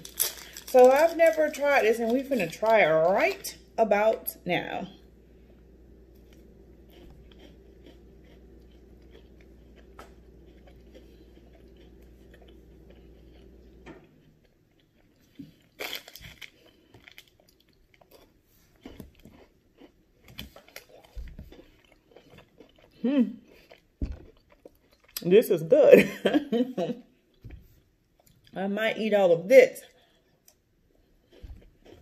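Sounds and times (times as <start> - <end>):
chewing and biting candy bar: 0.0 - 1.6, 6.3 - 25.2, 30.3 - 32.0
steady low hum: 0.0 - 32.0.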